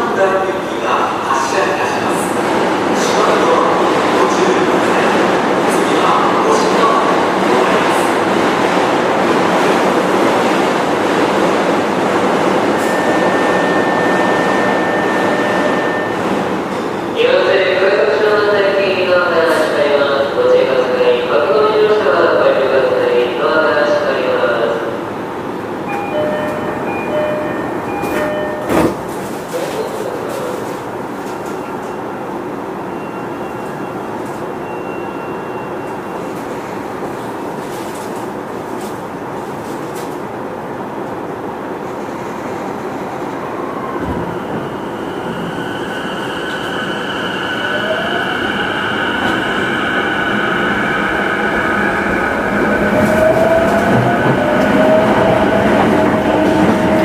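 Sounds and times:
train car noise: 24.7s - 57.0s
train wheels rumbling: 42.0s - 57.0s.

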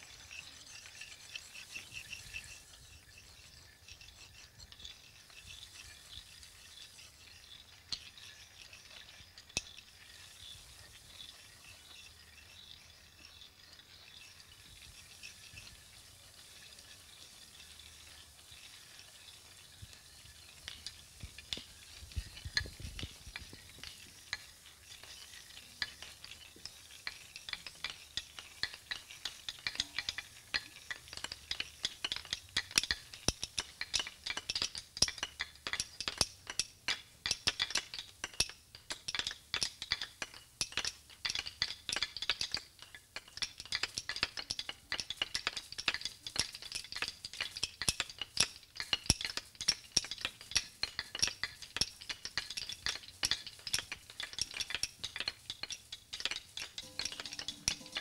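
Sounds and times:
dry rustle of wheat: 0.0s - 7.5s, 10.1s - 12.5s, 13.9s - 30.8s
percussive clicks and crackles: 0.0s - 58.0s.

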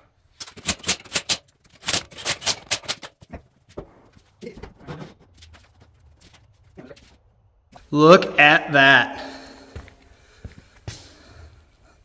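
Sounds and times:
sharp clicks and clacks: 0.4s - 3.5s.

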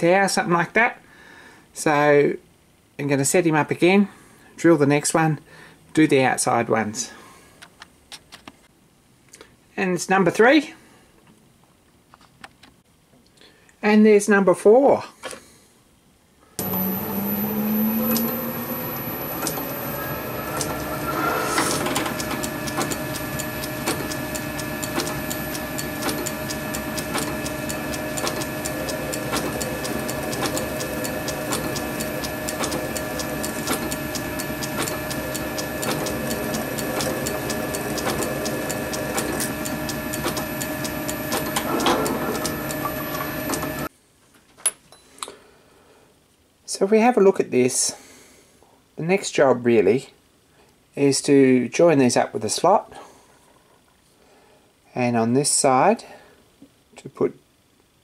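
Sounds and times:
drill drilling into brass: 16.6s - 43.9s
metal lathe motor whining: 16.6s - 43.9s.

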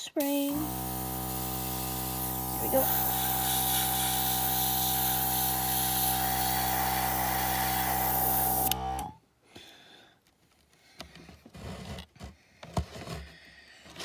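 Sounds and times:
airbrush compressor motor: 0.5s - 9.2s
air and paint hissing: 0.6s - 9.1s.

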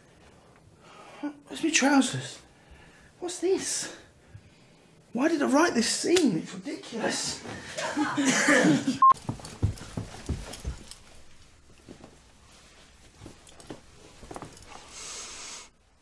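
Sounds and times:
footsteps on carpeted stairs: 9.1s - 14.8s.

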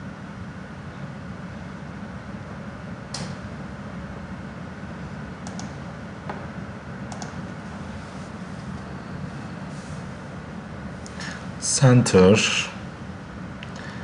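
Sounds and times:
low background hum: 0.0s - 14.0s
computer mouse clicks: 5.4s - 5.8s, 7.1s - 7.4s.

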